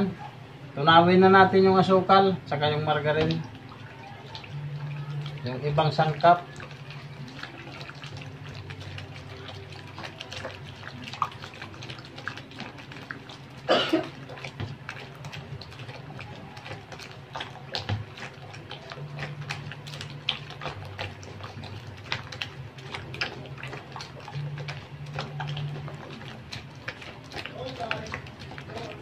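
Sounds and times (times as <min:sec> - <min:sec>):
hand squelching dough: 0:01.6 - 0:29.0
person coughing: 0:13.7 - 0:14.2.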